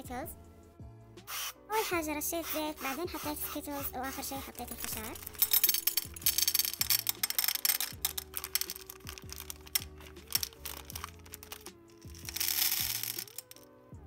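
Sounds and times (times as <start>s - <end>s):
bag rustling: 4.6s - 13.5s
candies clattering into a pot: 4.6s - 13.6s.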